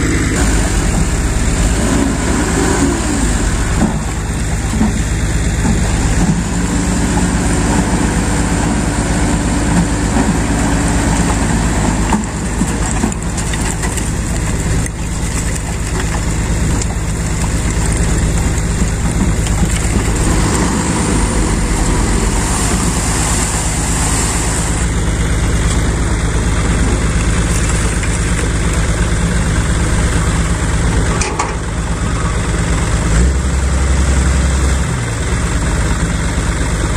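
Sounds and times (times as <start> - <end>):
deep engine drone: 0.0 - 36.9
diesel truck engine running: 0.0 - 36.9.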